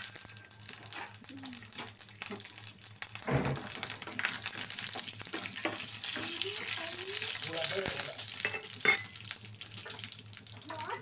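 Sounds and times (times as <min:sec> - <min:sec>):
spices crackling in hot oil: 0:00.0 - 0:11.0
knock on pan: 0:03.2 - 0:04.2.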